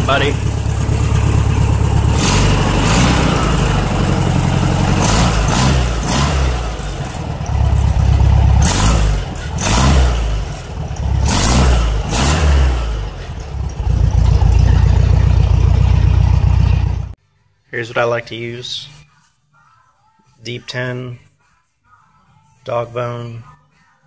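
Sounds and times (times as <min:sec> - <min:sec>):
car engine revving from idle: 0:00.0 - 0:17.2.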